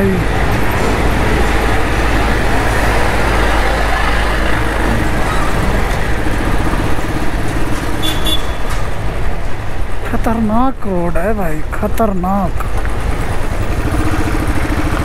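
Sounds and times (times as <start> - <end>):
motorcycle engine running: 12.8 - 15.0.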